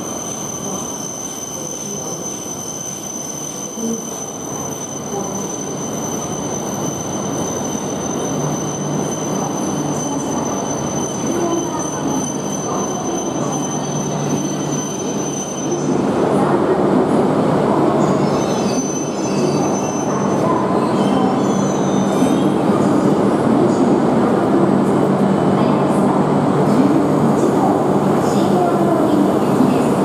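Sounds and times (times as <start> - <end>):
high wheel squeals: 0.0 - 16.0, 18.2 - 22.5
train hum and rushing: 0.0 - 30.0.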